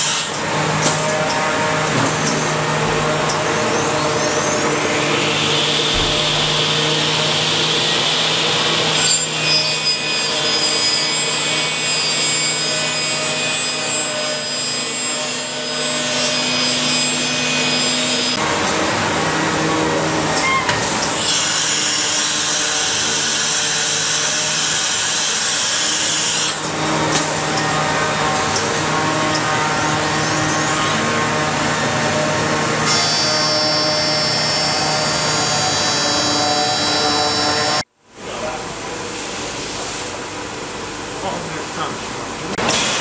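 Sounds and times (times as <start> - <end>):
machine and dust extractor hum: 0.3 - 9.0.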